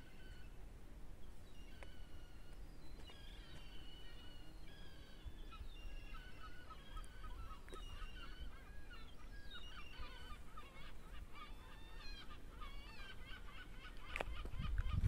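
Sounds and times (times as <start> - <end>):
birds honking: 3.1 - 15.0.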